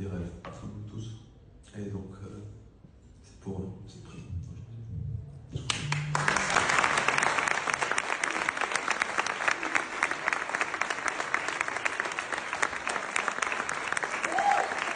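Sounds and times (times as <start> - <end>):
large audience applauding: 5.7 - 14.9.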